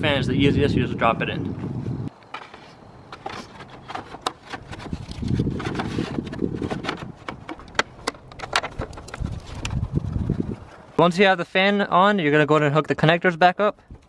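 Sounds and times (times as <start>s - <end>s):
plastic clicks knocks and scrapes: 2.3s - 9.8s.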